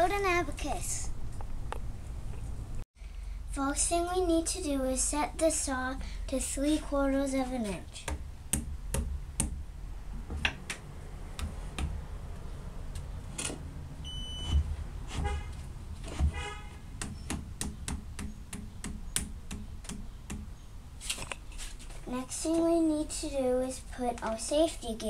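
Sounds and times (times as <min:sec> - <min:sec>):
high beep: 0:14.0 - 0:14.6.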